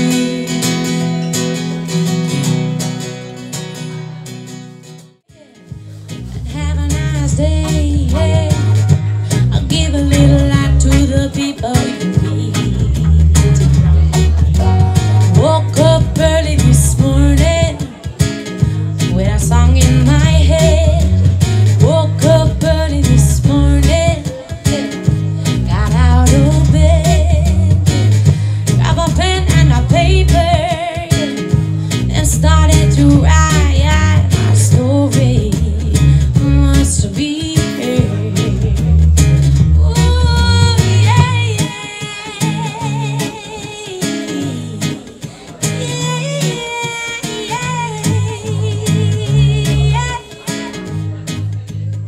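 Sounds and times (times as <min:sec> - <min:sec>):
guitar playing: 0:00.0 - 0:52.0
woman singing into microphone: 0:05.3 - 0:14.0, 0:14.6 - 0:51.2
steady bass: 0:05.7 - 0:11.3, 0:12.2 - 0:17.8, 0:18.6 - 0:24.3, 0:25.1 - 0:30.8, 0:31.5 - 0:37.2, 0:38.0 - 0:41.7, 0:47.7 - 0:50.2.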